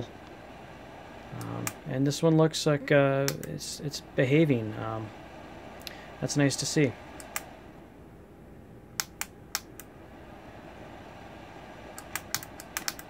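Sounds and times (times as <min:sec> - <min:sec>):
power switch clicking: 0:01.4 - 0:01.8, 0:03.3 - 0:03.6, 0:07.2 - 0:07.5, 0:09.0 - 0:09.9, 0:12.0 - 0:13.0.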